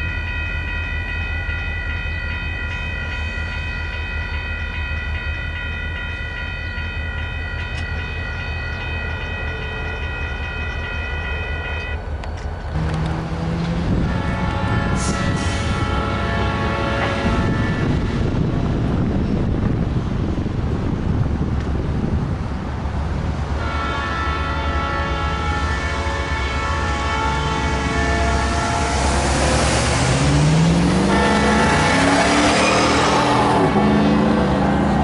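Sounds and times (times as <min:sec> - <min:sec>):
crossing warning bell ringing: 0:00.0 - 0:13.0, 0:23.6 - 0:35.0
train horn: 0:08.6 - 0:12.0, 0:12.8 - 0:18.4, 0:23.6 - 0:35.0.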